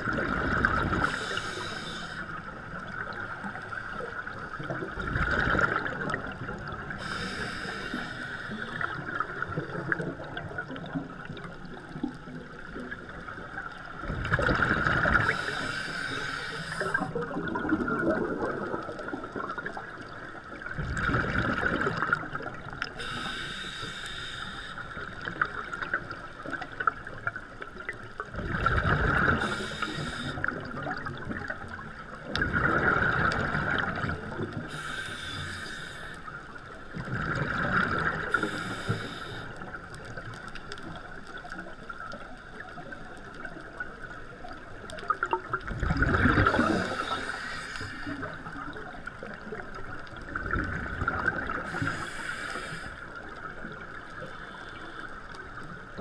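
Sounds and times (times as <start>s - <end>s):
exhaled bubbles rumbling: 0.0s - 1.8s, 2.4s - 7.4s, 8.6s - 15.9s, 16.8s - 23.0s, 25.2s - 34.9s, 36.4s - 38.7s, 39.6s - 47.4s, 48.0s - 52.1s
regulator inhale hiss: 1.0s - 2.9s, 6.9s - 9.2s, 15.1s - 17.2s, 22.9s - 25.4s, 29.3s - 30.7s, 34.5s - 36.8s, 38.2s - 40.1s, 46.4s - 48.7s, 51.4s - 55.6s.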